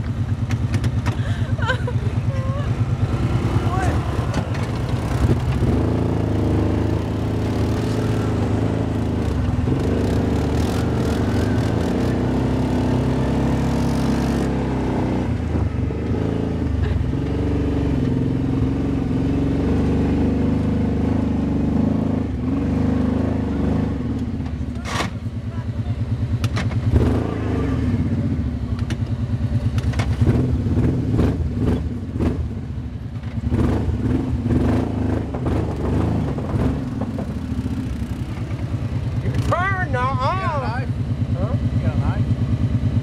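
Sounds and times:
off-road vehicle engine running: 0.0s - 43.0s.

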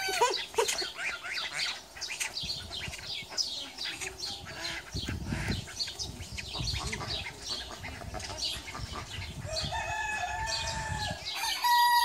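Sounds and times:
rooster crowing: 9.5s - 12.0s.

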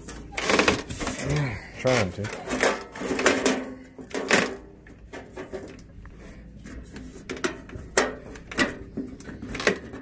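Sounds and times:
metal parts rattling in door: 0.3s - 5.8s.

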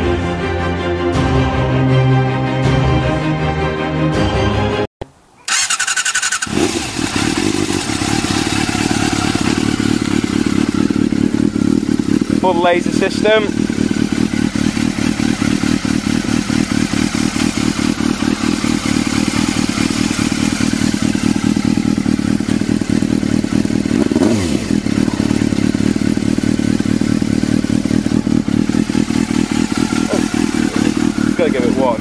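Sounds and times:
motorcycle engine idling: 5.5s - 32.0s.

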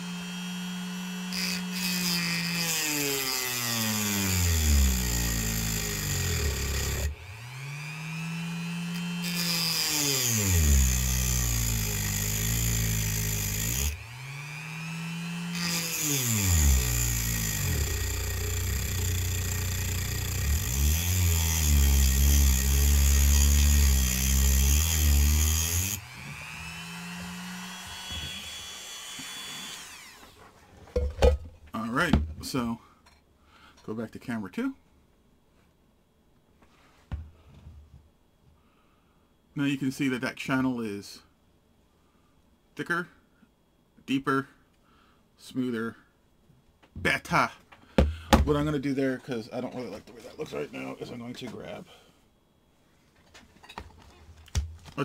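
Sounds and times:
rotary tool motor whine: 0.0s - 30.4s
gritty grinding on metal: 1.3s - 7.3s, 14.6s - 30.4s.

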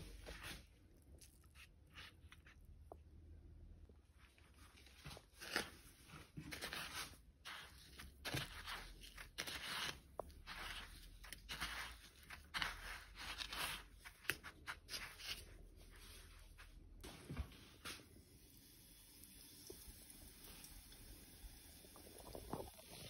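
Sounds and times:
bread crumbs crunching and rustling: 0.0s - 3.0s, 4.1s - 18.1s, 22.1s - 23.0s.

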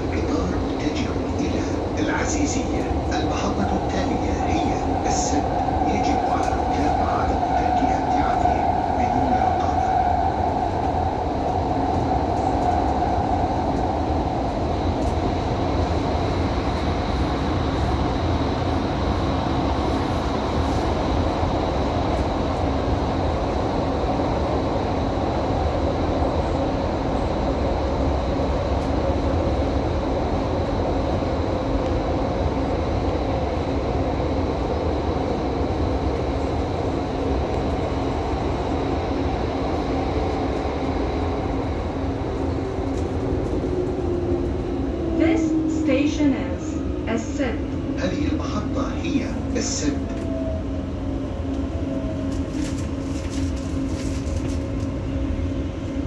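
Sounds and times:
faint high whine: 0.0s - 15.3s
train rumbling in a tunnel: 0.0s - 56.0s.

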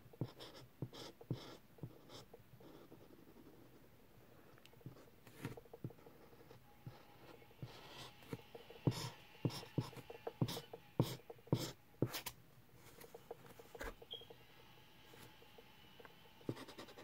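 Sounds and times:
felt marker scratching on paper: 0.2s - 3.8s, 4.8s - 12.2s, 16.4s - 17.0s.

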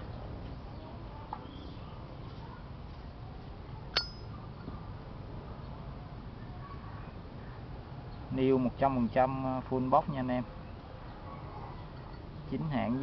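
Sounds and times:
metal lighter clink: 4.0s - 4.2s.

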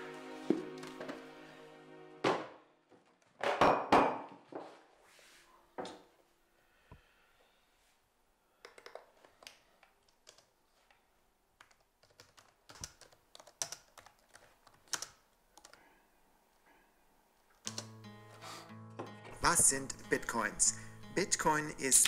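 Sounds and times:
typing on laptop keyboard: 8.6s - 11.0s, 11.6s - 15.8s, 17.6s - 17.9s.

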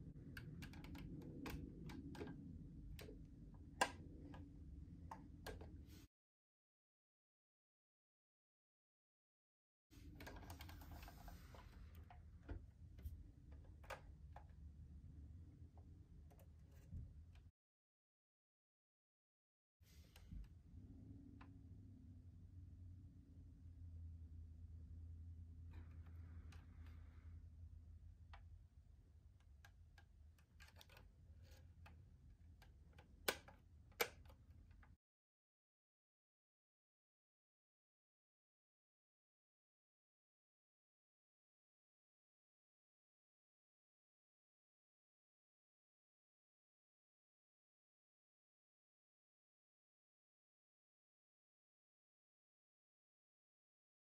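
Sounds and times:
faint clicks and taps: 0.0s - 6.0s, 10.0s - 14.7s, 29.4s - 35.0s
low steady hum: 0.0s - 6.1s, 19.9s - 35.0s.

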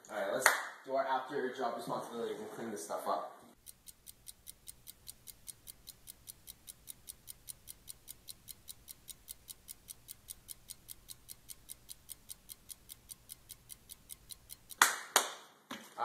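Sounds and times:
faint rapid high-pitched ticking: 3.6s - 14.8s.

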